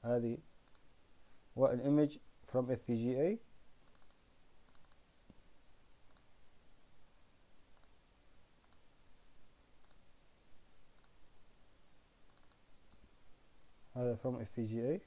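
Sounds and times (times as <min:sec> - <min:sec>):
computer mouse clicks: 0:00.6 - 0:00.9, 0:03.8 - 0:05.4, 0:06.0 - 0:06.3, 0:07.7 - 0:08.0, 0:08.6 - 0:08.9, 0:09.8 - 0:10.0, 0:10.9 - 0:11.2, 0:12.2 - 0:13.1.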